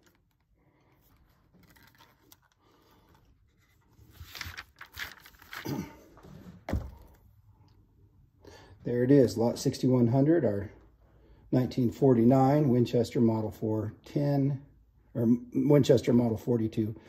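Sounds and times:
handling scraping and rustling: 0.0 - 7.2.

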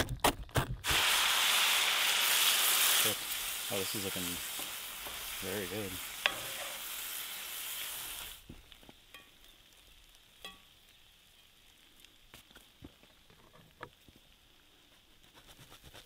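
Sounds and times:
food sizzling in a skillet: 0.8 - 13.3.

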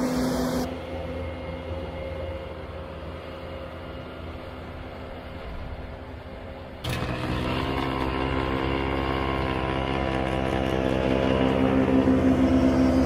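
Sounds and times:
loader engine running: 0.0 - 13.0
snow blower throwing snow: 6.8 - 13.0.

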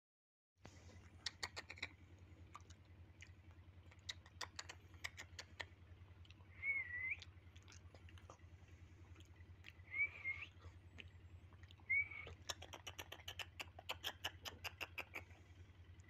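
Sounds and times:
low steady hum: 0.6 - 16.0
bird whistled call: 6.5 - 7.3, 9.8 - 10.6, 11.8 - 14.2.

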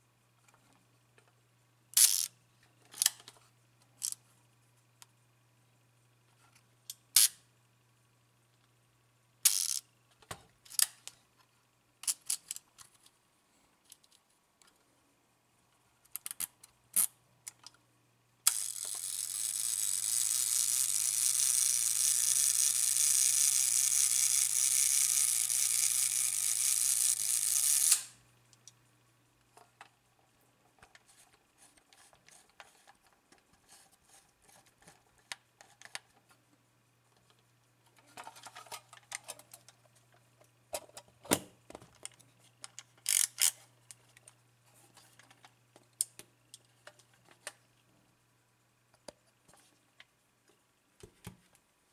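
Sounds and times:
camera self-timer buzzing: 18.5 - 28.2.

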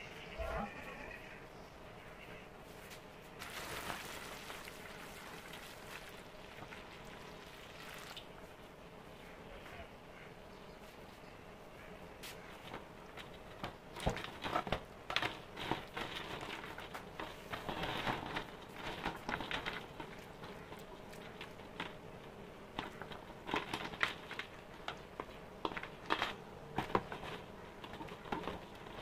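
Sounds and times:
water sloshing and splashing: 3.4 - 8.4.

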